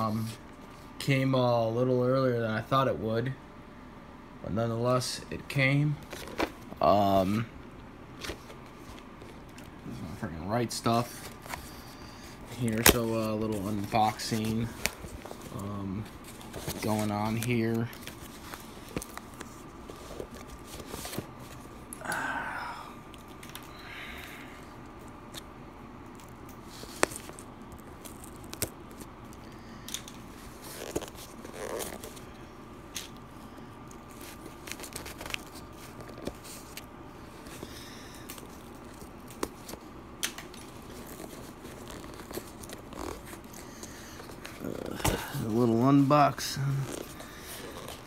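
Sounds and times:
cardboard box rustling: 0:12.5 - 0:21.7.

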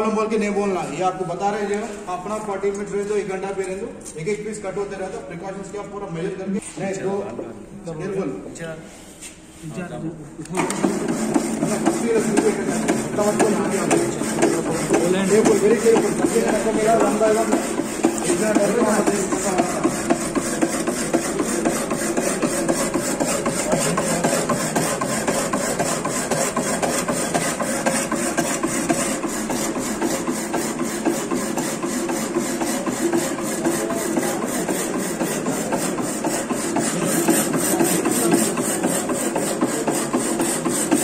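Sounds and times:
power hacksaw cutting metal: 0:10.6 - 0:41.0.

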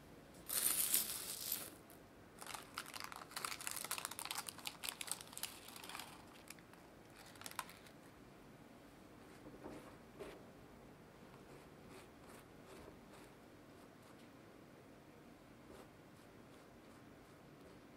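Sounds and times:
parchment paper crinkling: 0:02.4 - 0:08.0.

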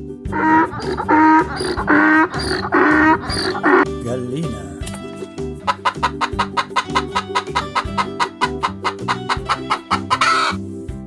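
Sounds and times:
background music: 0:00.0 - 0:11.0
hen clucking: 0:00.3 - 0:03.8, 0:05.6 - 0:10.6.

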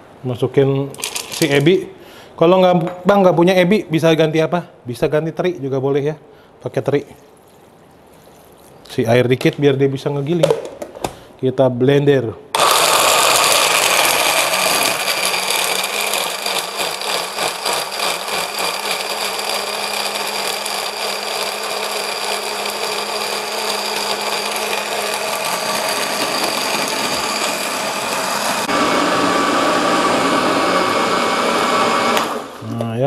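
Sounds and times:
blender grinding: 0:01.0 - 0:01.5, 0:12.6 - 0:32.6.

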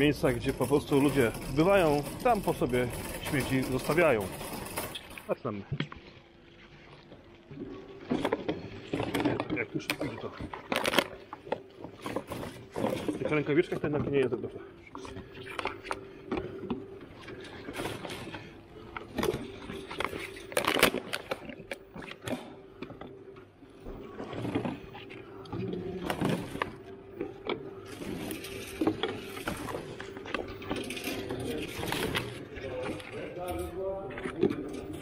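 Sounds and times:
plastic bag rustling: 0:00.0 - 0:05.4, 0:23.9 - 0:35.0
plastic bottles crinkling and knocking: 0:00.0 - 0:35.0.

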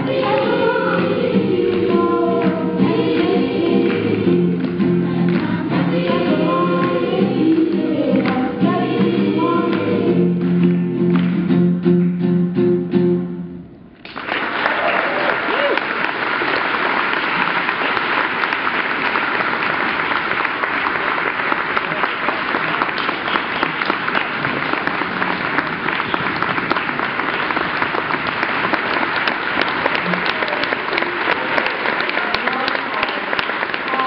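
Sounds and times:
audience applauding: 0:14.0 - 0:34.0.

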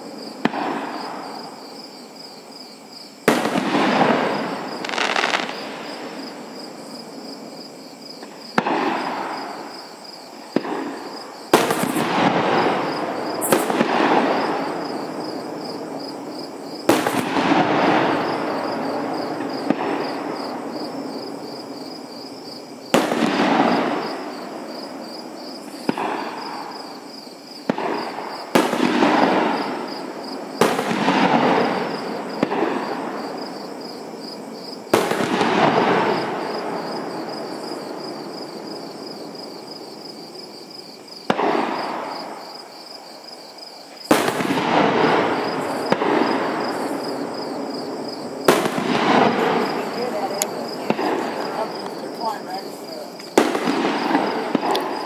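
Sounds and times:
fireworks shells bursting with echo: 0:03.2 - 0:07.0, 0:08.2 - 0:22.0, 0:43.8 - 0:55.0.

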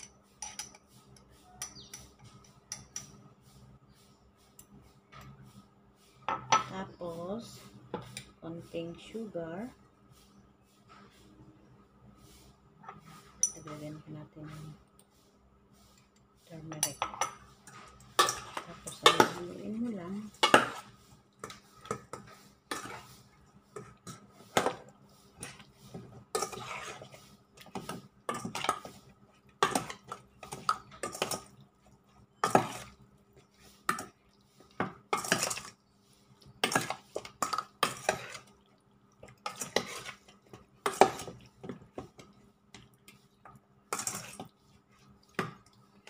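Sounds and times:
metal spoon scraping metal bowl: 0:25.4 - 0:29.0, 0:36.4 - 0:38.5, 0:39.4 - 0:41.4.

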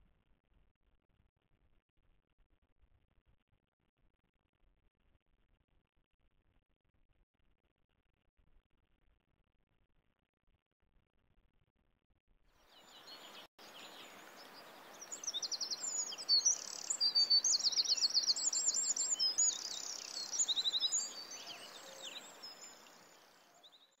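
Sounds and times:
small birds trilling and chirping: 0:12.7 - 0:24.0
steady background hiss: 0:13.1 - 0:23.5.

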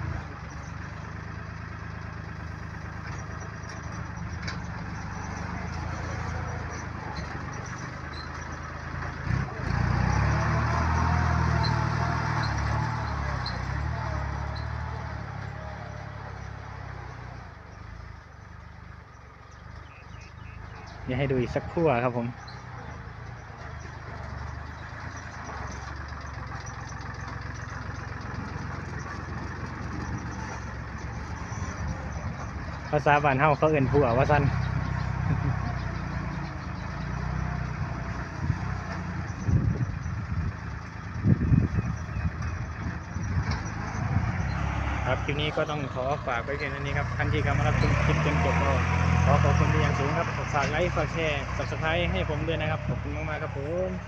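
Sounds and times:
tractor engine humming: 0:00.0 - 0:54.0.

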